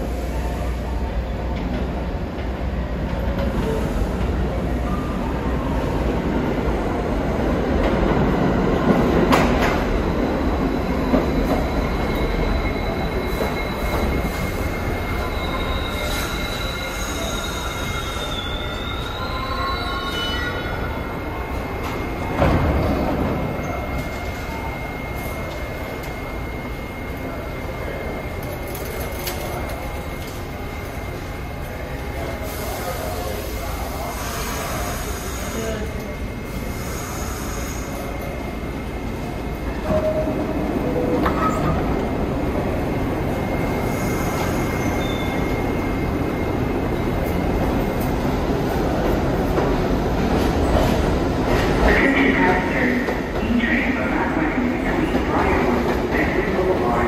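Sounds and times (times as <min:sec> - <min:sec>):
subway train rumbling on rails: 0:00.0 - 0:57.0
wheel squeals: 0:43.8 - 0:45.7.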